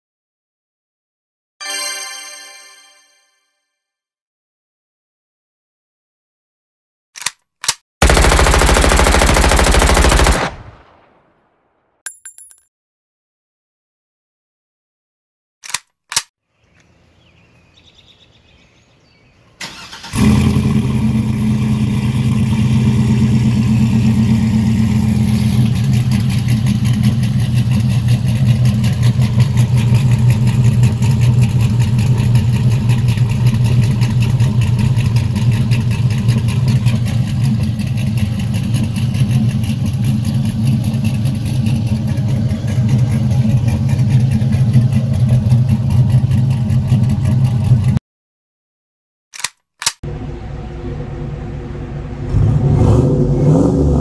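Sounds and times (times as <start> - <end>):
car engine idling: 8.0 - 11.0, 19.8 - 48.0, 50.1 - 52.7.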